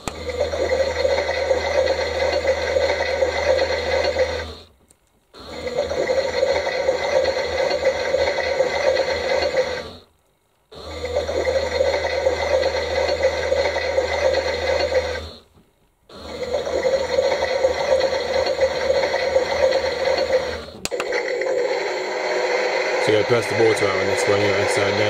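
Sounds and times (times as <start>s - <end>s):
toy washing machine motor: 0.0s - 4.7s, 5.4s - 10.1s, 10.8s - 15.5s, 16.1s - 25.0s.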